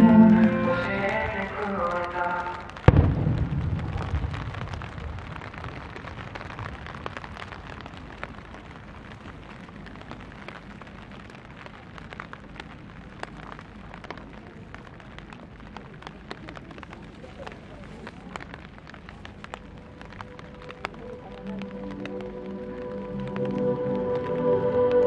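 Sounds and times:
rain falling: 0.0s - 25.0s
raindrops ticking: 0.0s - 25.0s
firework burst echo rumbling: 2.5s - 8.5s.

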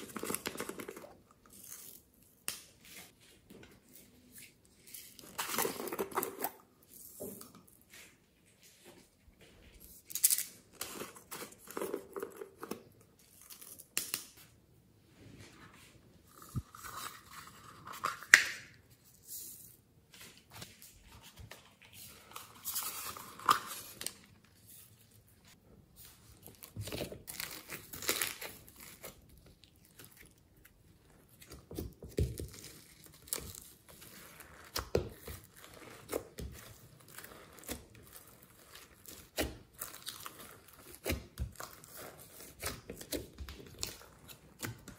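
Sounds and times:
slime crinkling and crackling: 32.4s - 44.9s.

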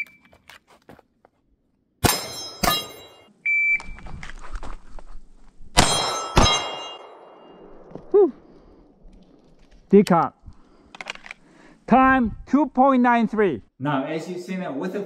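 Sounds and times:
bullets ringing on steel plates: 2.0s - 3.3s, 5.8s - 7.5s
pistol shots: 5.8s - 7.4s.

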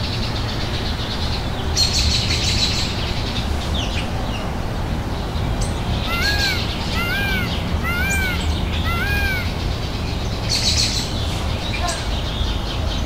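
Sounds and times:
peafowl calling: 6.0s - 9.6s.

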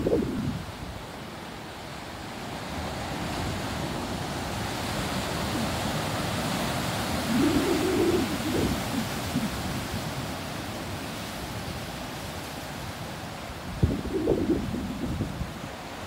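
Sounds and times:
wind buffeting microphone: 0.0s - 1.0s, 7.2s - 10.2s, 13.7s - 15.8s
surf washing over rocks: 0.0s - 16.0s.

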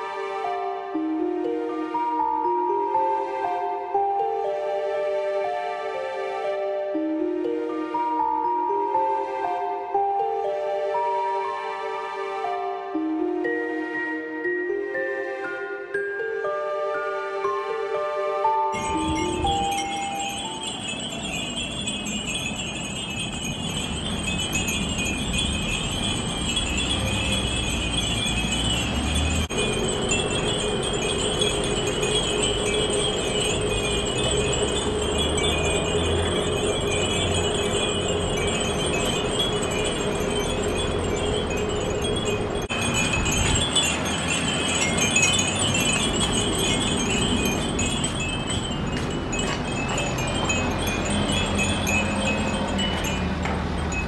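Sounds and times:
glass wind bells tinkling: 8.0s - 11.4s, 18.7s - 54.0s.

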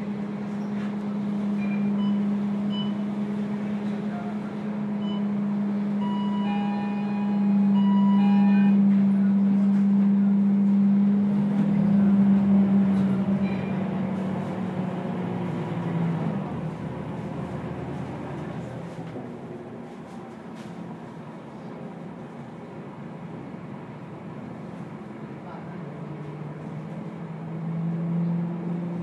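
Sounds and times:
bus engine drone: 0.0s - 29.0s
short electronic beeps: 6.0s - 8.8s.

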